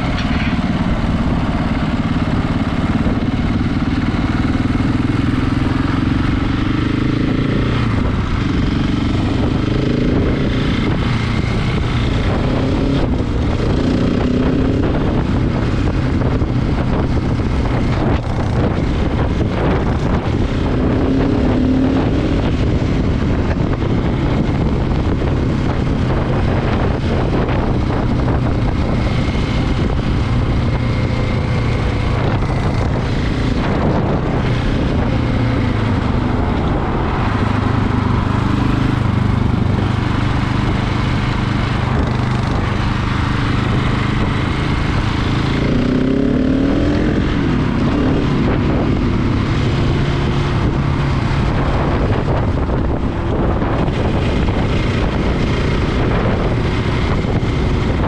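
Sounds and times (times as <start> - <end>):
motorcycle engine cruising: 0.0 - 58.0
wind noise on microphone: 0.0 - 58.0.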